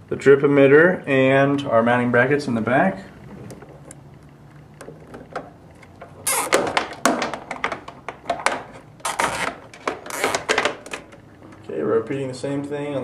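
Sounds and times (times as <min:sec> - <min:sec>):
zip tie ratchet clicks: 0:06.3 - 0:06.6.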